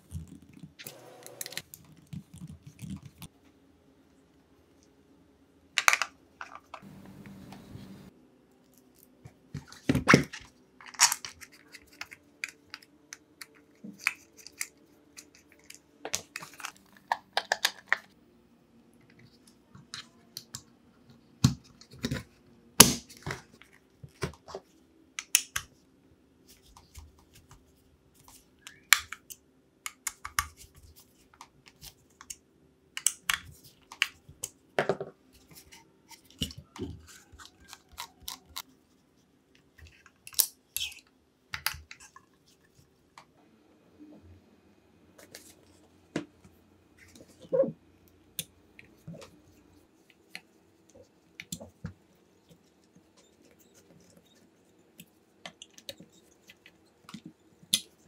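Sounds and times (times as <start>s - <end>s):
faint steady hum: 0.0s - 9.8s.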